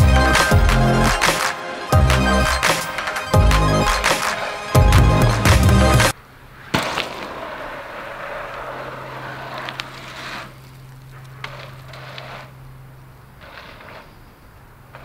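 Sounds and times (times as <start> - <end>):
bike tyres rolling over dirt: 6.6 - 15.0
bike landing thud: 6.7 - 7.4.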